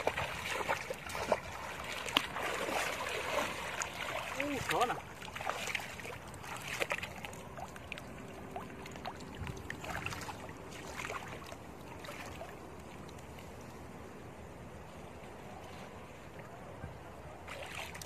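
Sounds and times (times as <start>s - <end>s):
water trickling: 0.0s - 13.3s
water sloshing and splashing: 0.0s - 13.8s, 17.4s - 18.0s.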